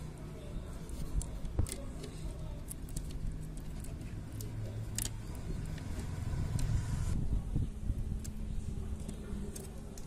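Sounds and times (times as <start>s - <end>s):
low background rumble: 0.0s - 10.0s.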